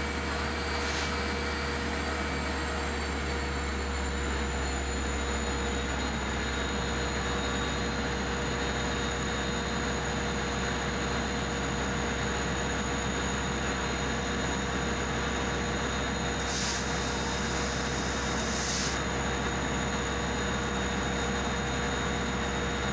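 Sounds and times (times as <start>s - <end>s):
diesel locomotive idling: 0.0s - 22.9s
high hiss: 16.4s - 19.0s.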